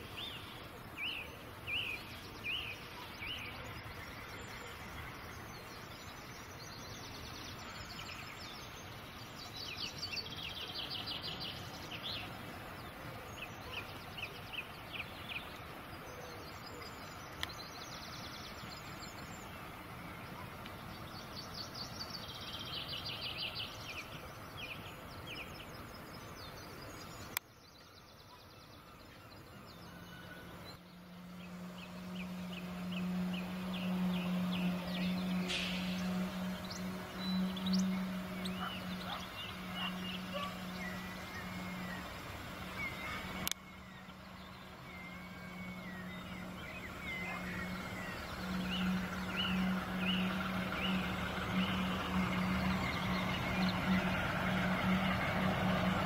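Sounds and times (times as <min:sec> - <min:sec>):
distant locomotive rumble: 0:00.0 - 0:27.4, 0:28.7 - 0:56.0
low engine hum: 0:00.0 - 0:27.4, 0:28.8 - 0:56.0
birds chirping: 0:00.0 - 0:56.0.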